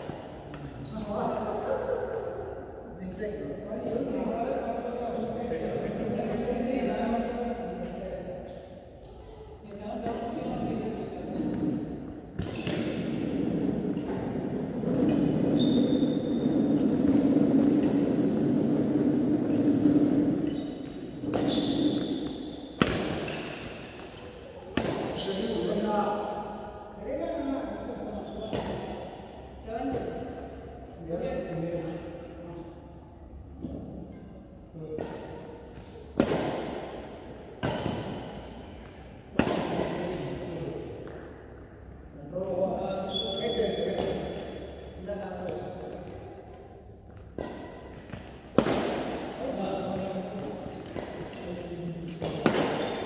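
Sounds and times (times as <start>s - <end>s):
low hum in echoing hall: 0.0s - 53.0s
shoes squeaking on court floor: 0.6s - 1.4s, 13.9s - 17.3s, 19.6s - 24.4s, 25.0s - 25.7s, 28.0s - 29.0s, 35.6s - 38.9s, 42.9s - 46.3s, 49.4s - 53.0s
racket hitting shuttlecock: 11.3s - 25.6s, 28.5s - 29.2s, 35.0s - 40.3s, 43.3s - 53.0s.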